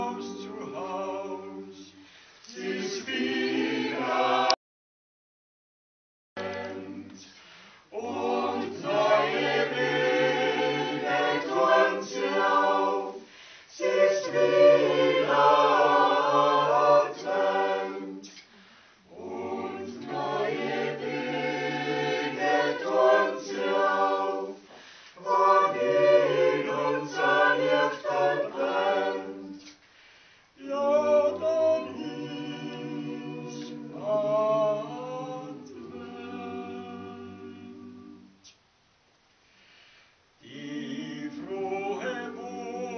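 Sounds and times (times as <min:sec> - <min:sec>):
choir singing a cappella: 0:00.0 - 0:04.6, 0:06.4 - 0:29.9, 0:30.5 - 0:38.6, 0:40.4 - 0:42.9
singers breathing: 0:02.0 - 0:02.5, 0:07.2 - 0:07.9, 0:13.2 - 0:13.8, 0:18.4 - 0:19.1, 0:24.6 - 0:25.2, 0:29.8 - 0:30.6, 0:39.4 - 0:40.2.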